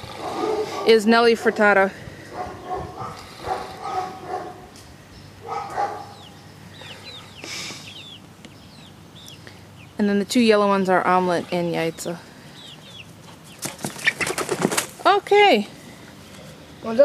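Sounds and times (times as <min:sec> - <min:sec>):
chicks trilling softly: 0:01.6 - 0:14.9
chicks high falling peeps: 0:05.2 - 0:14.9.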